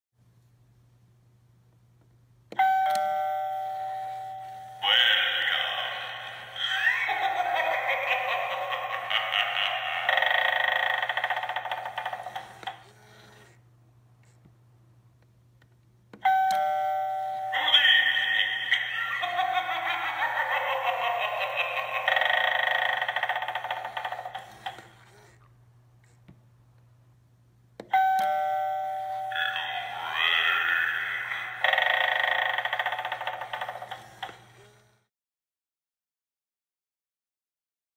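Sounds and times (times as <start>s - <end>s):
electronic doorbell chime: 2.6s - 4.8s, 16.2s - 17.6s, 28.0s - 29.6s
spooky voice-like sound effect: 4.8s - 12.3s, 17.5s - 24.5s, 29.2s - 34.2s.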